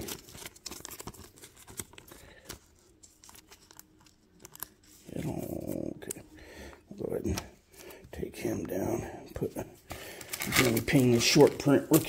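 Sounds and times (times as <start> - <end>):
plastic sleeve crinkling: 0.0 - 6.3, 9.9 - 12.0.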